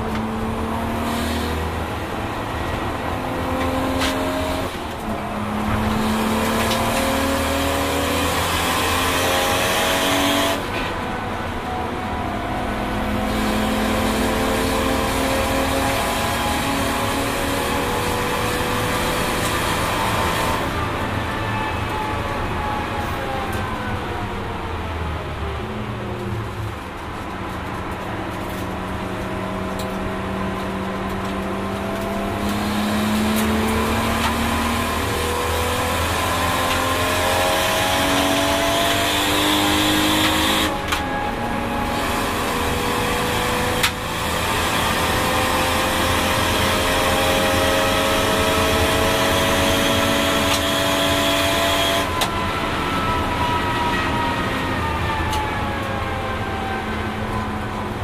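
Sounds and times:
car engine revving from cabin: 0.1 - 10.7, 12.7 - 20.8, 31.6 - 40.8, 41.6 - 52.2
gear changes: 26.2 - 54.1.

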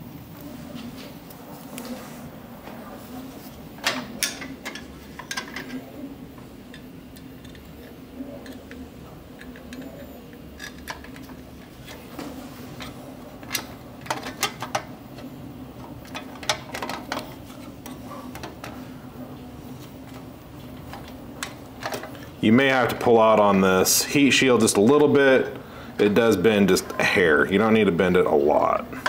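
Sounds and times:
steady low hum: 0.0 - 29.0.

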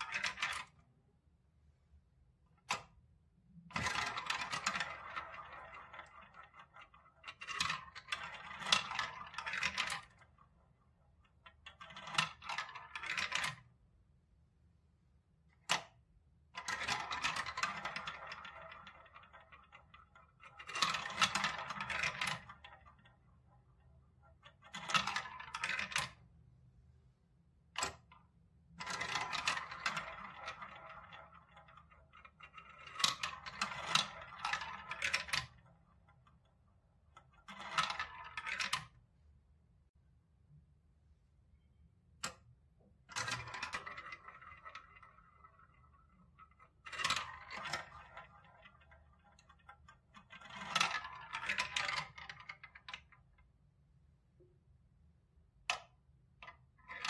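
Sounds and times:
plastic balls rattling through tubes: 0.0 - 0.8, 3.5 - 13.8, 15.6 - 26.4, 27.7 - 39.1, 43.0 - 53.4.

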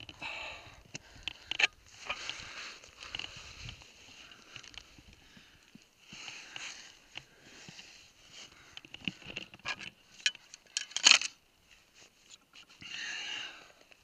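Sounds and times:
metal climbing gear clinking: 8.8 - 11.4.

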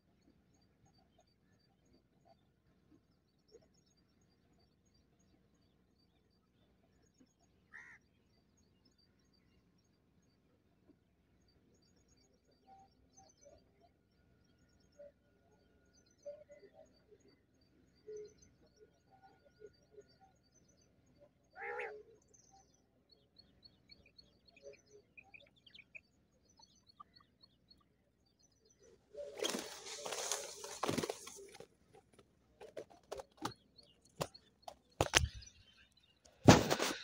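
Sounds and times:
small birds chirping: 20.6 - 37.0
wing flapping and rustling: 29.1 - 35.5, 36.3 - 37.0.

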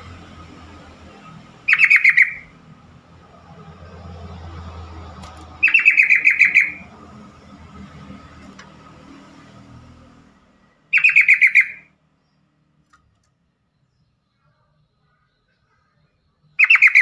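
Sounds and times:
bulbul rapid chattering calls: 1.7 - 2.5, 5.6 - 6.9, 10.9 - 11.8, 16.6 - 17.0.

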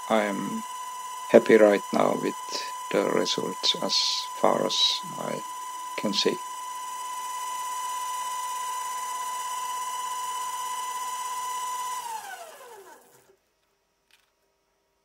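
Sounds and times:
lathe motor whining: 0.0 - 13.4.

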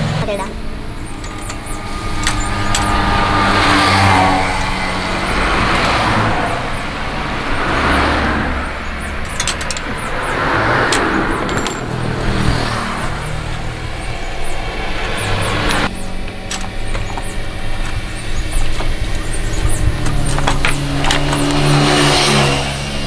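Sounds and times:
road traffic rushing past: 0.0 - 23.0
sharp clicks: 1.0 - 3.0, 9.2 - 10.2.

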